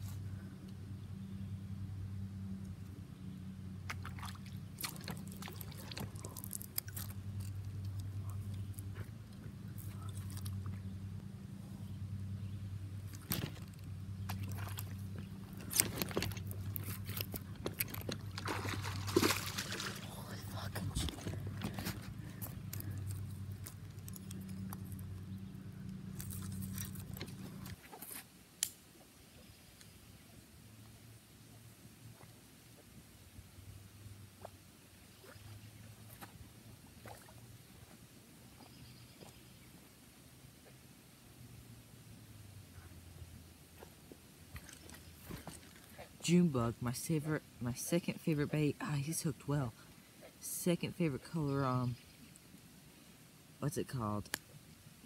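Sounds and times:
steady low hum: 0.0 - 27.9
water splashing and dripping: 3.9 - 7.5, 13.1 - 23.0.

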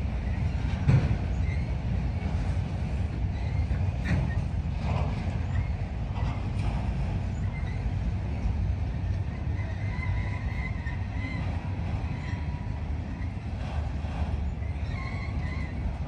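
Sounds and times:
train cars clanking: 0.0 - 16.0
train wheels rumbling on rail: 0.0 - 16.0
faint wheel squeals: 1.3 - 1.8, 3.3 - 4.5, 7.2 - 16.0.

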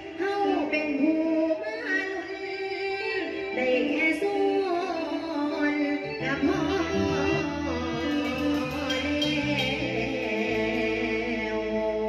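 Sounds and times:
woman singing into microphone: 0.0 - 12.0
backing music: 6.0 - 12.0.

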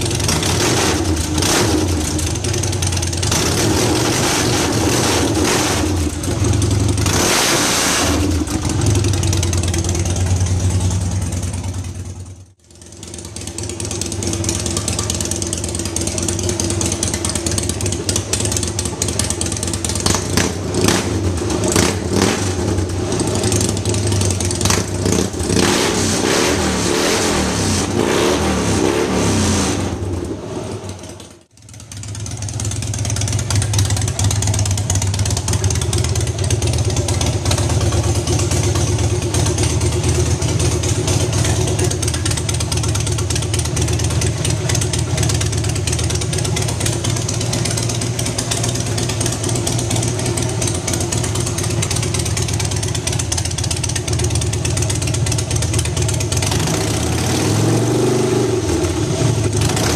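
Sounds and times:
motorcycle idling and revving: 0.0 - 59.9.

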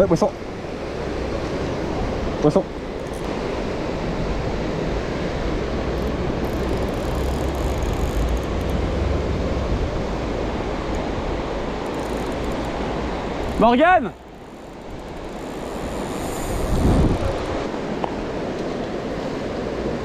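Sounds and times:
wind buffeting microphone: 16.4 - 17.9.

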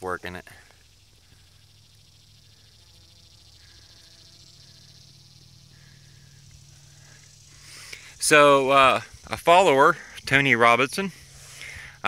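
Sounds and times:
bumblebee buzzing: 0.6 - 12.0.

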